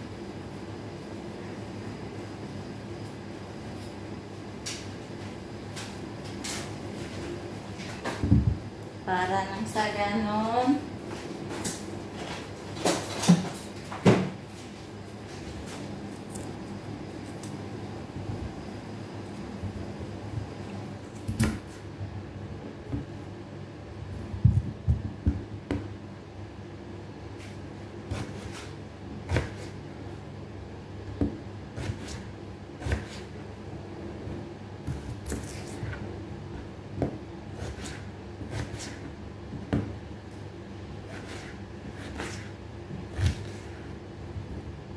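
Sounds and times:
low room hum: 0.0s - 44.9s
knife cutting potatoes: 27.4s - 29.8s, 31.2s - 33.4s, 34.8s - 36.0s, 37.0s - 39.1s, 41.0s - 43.9s.

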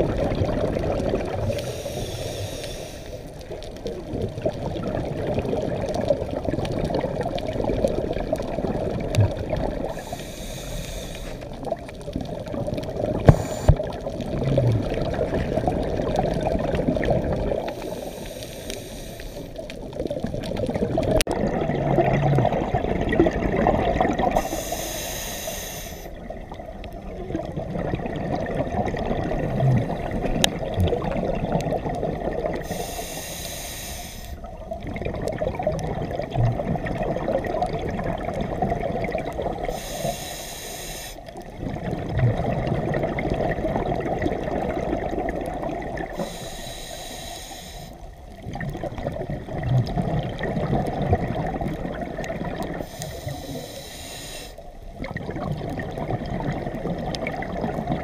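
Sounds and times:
bubbling of exhaled air: 0.0s - 58.0s
hissing regulator inhale: 1.4s - 3.4s, 9.9s - 11.6s, 13.2s - 13.9s, 17.7s - 19.6s, 24.3s - 26.2s, 32.6s - 34.5s, 39.7s - 41.3s, 46.1s - 48.2s, 52.8s - 54.7s.

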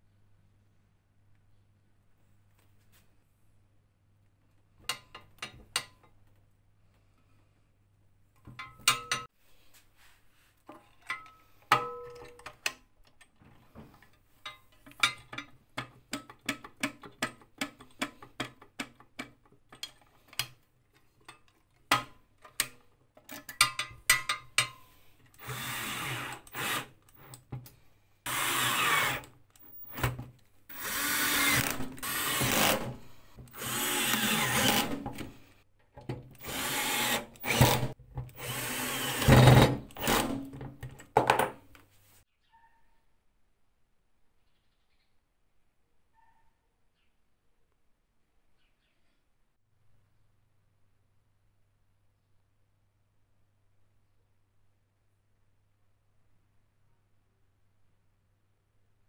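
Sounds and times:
cordless drill running: 25.4s - 27.3s, 28.3s - 30.0s, 30.7s - 35.5s, 36.4s - 40.4s.

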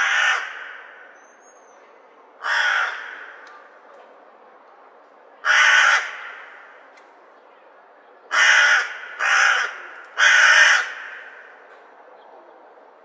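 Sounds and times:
crow cawing: 0.0s - 1.1s, 2.4s - 3.4s, 5.4s - 6.7s, 8.3s - 11.6s.

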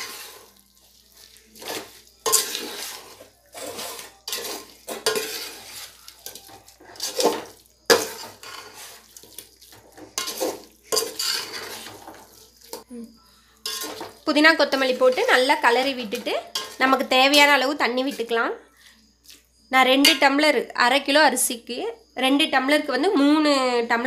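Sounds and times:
ladle scraping a metal pot: 0.0s - 0.6s, 1.5s - 12.8s, 13.6s - 17.1s.

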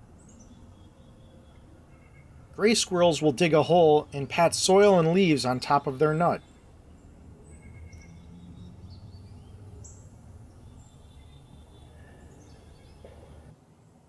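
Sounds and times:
bird chirps: 0.1s - 13.5s.

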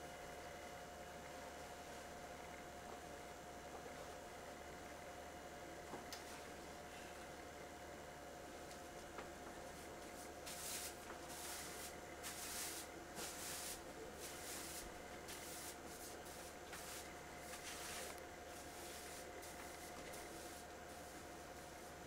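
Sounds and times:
broom sweeping wooden floor: 10.0s - 22.0s.

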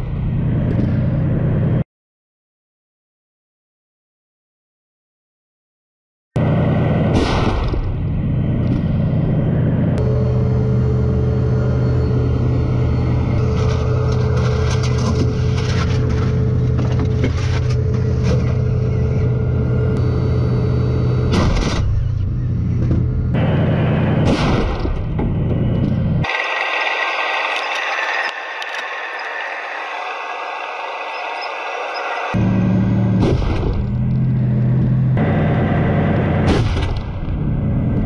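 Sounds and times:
tank engine running: 0.0s - 1.8s, 6.4s - 38.0s
tank gun firing: 7.1s - 8.1s, 24.0s - 25.2s, 33.2s - 34.1s, 36.3s - 37.6s.

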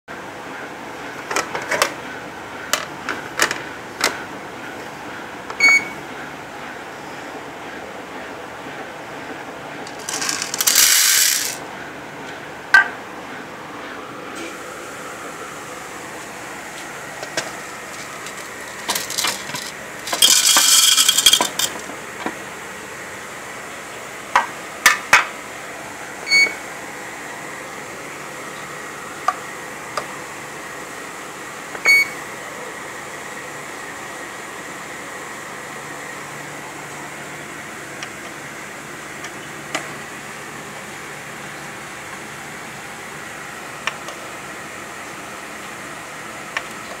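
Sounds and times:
kitchen scale beeps: 5.6s - 6.0s, 26.3s - 26.6s, 31.9s - 32.2s
coffee grinder bursts: 9.9s - 11.6s, 18.2s - 21.8s.

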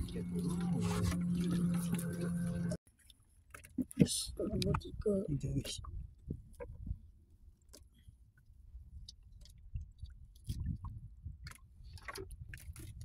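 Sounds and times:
low rumble: 0.0s - 2.8s.

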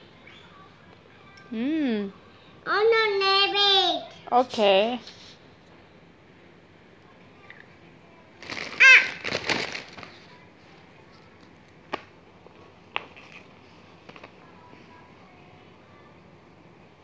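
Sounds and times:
crackling: 8.4s - 10.3s.

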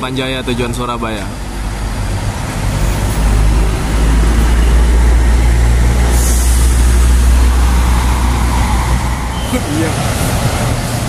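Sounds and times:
bus diesel engine drone: 0.0s - 11.0s
air hiss: 5.9s - 11.0s.

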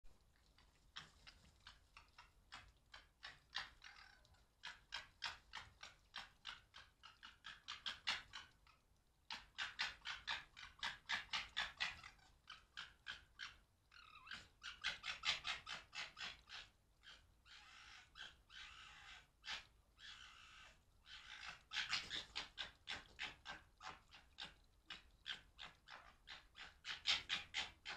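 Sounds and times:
foxes chattering: 0.4s - 27.9s.

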